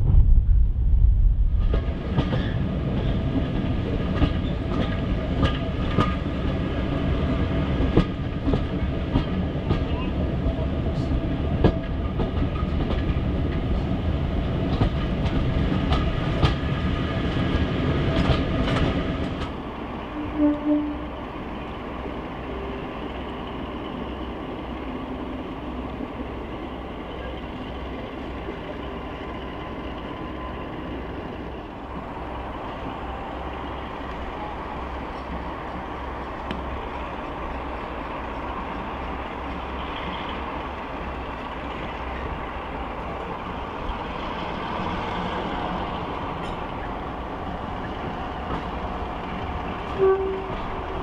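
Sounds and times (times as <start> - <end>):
steady rumble with low pulsing: 0.0 - 2.2
train wheel noise: 0.0 - 51.0.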